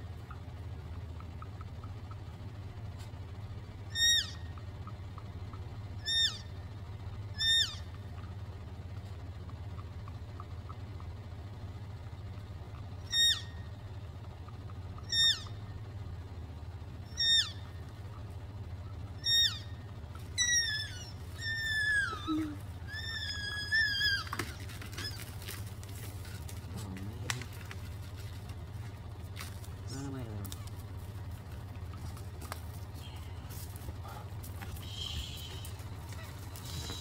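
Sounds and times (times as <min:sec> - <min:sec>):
elk squealing calls: 0:03.8 - 0:04.6, 0:05.9 - 0:06.6, 0:07.3 - 0:08.0, 0:13.0 - 0:13.8, 0:14.6 - 0:15.7, 0:17.0 - 0:18.2, 0:19.0 - 0:25.5, 0:34.8 - 0:37.0.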